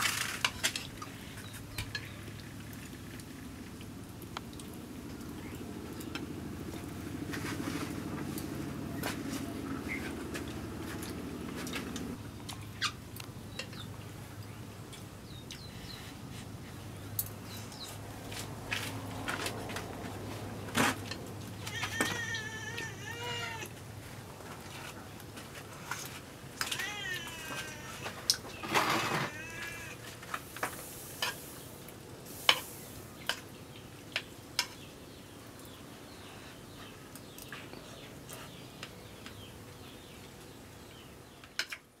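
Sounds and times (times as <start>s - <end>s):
wavering animal calls: 21.6s - 23.8s, 26.6s - 30.2s.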